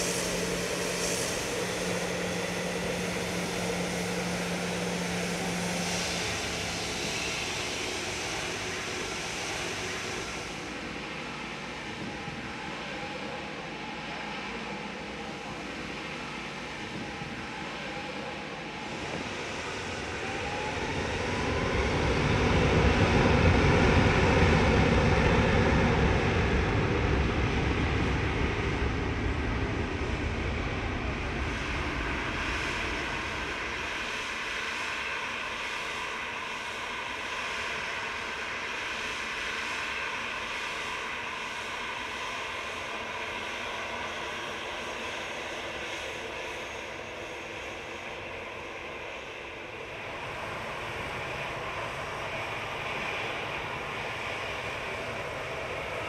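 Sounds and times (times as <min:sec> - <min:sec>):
jet engines spooling up: 0:00.0 - 0:13.8.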